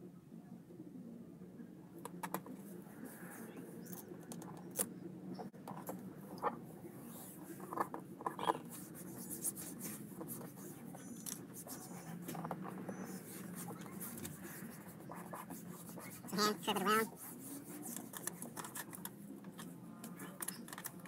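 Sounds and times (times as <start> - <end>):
hands crackling and rubbing adhesive trim: 17.7 - 21.0.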